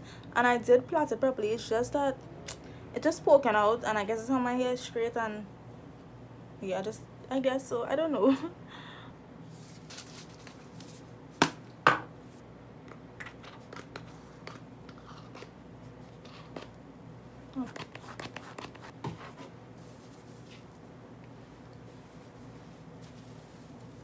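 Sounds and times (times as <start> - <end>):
steady low hum: 0.0 - 24.0
rustling: 21.6 - 24.0.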